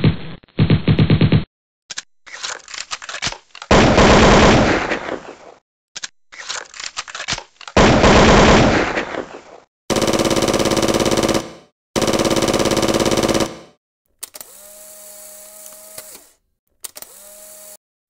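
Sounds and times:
rapid gunfire burst: 0:03.7 - 0:05.3, 0:07.8 - 0:13.8
gunshots: 0:03.7 - 0:05.6, 0:07.8 - 0:13.8.

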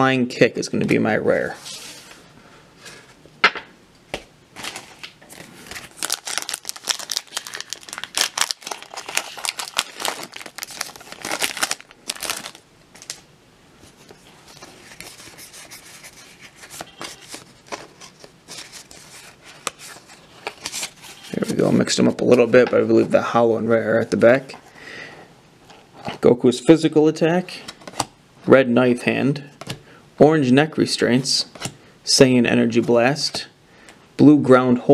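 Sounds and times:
cards rustling: 0:04.1 - 0:13.2, 0:13.8 - 0:23.2
wrapper crinkling and tearing: 0:04.6 - 0:13.2, 0:16.2 - 0:22.0.

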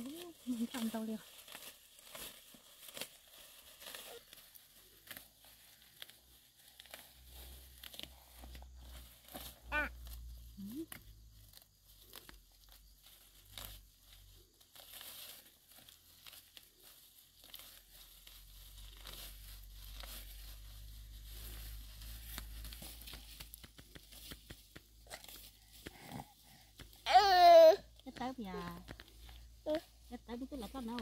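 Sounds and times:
undergrowth rustling and tearing: 0:00.0 - 0:31.0
short snaps and crackles: 0:22.3 - 0:26.1.

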